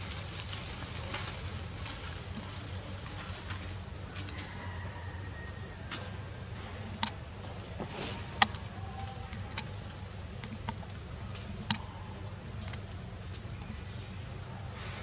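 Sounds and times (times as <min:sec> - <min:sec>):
steady low rumble: 0:06.0 - 0:15.0.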